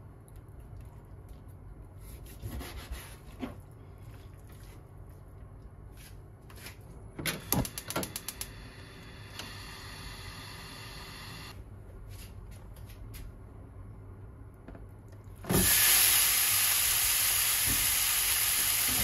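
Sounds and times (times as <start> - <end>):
gas stove igniter clicks: 7.5 - 8.6
burner flame hissing: 15.5 - 19.0.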